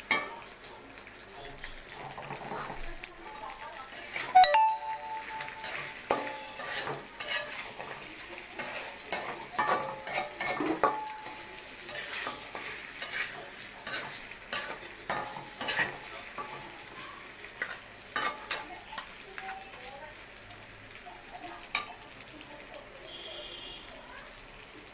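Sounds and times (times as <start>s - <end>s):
meat sizzling in oil: 0.0s - 24.9s
spatula scraping a wok: 1.9s - 2.8s, 3.8s - 4.4s, 5.6s - 17.0s, 17.6s - 19.2s.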